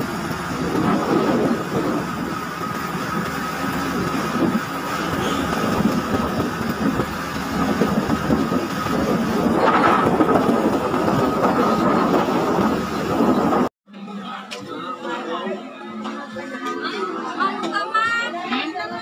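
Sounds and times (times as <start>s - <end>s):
road rumble: 0.0s - 13.7s
vehicle engine running: 0.0s - 13.7s
wind buffeting: 0.0s - 13.7s.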